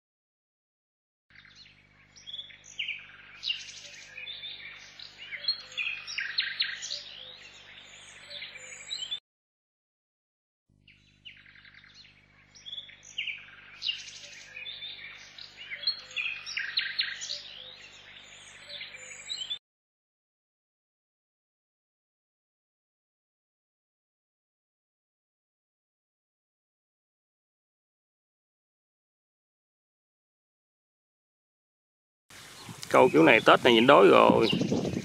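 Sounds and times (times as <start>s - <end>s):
small birds chirping: 1.3s - 9.2s, 10.8s - 19.6s, 32.3s - 35.0s.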